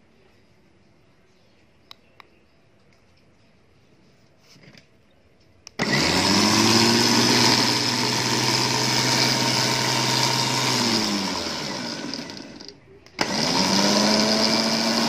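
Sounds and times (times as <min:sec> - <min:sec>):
electric winch motor whining: 0:05.8 - 0:15.0.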